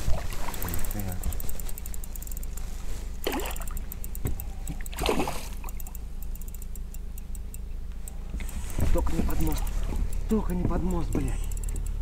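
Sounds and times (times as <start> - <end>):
fishing reel ticking: 0.4 - 12.0
fish splashing at water surface: 3.2 - 3.9, 4.7 - 5.9.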